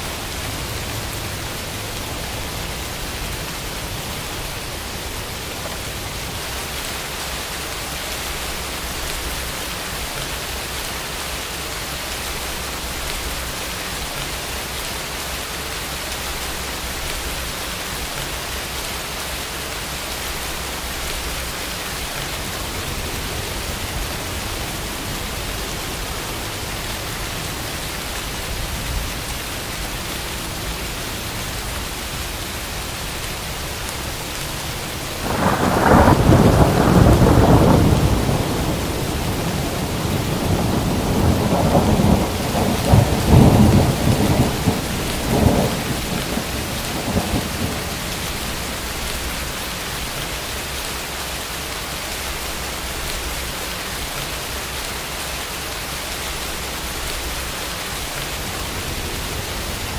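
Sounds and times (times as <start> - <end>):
steady rain falling: 0.0 - 59.9
rolling thunder: 35.1 - 49.6.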